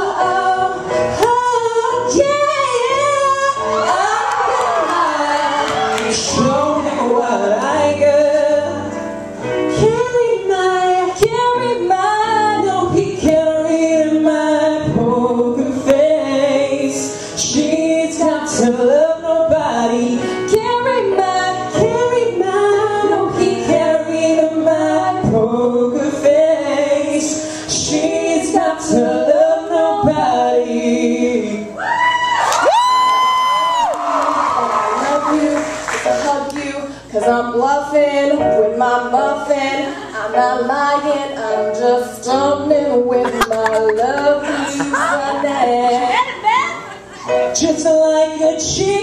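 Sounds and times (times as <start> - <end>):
woman singing: 0.0 - 9.0, 9.6 - 31.8, 33.8 - 49.0
man singing: 6.0 - 8.9, 12.6 - 20.4, 43.2 - 45.9.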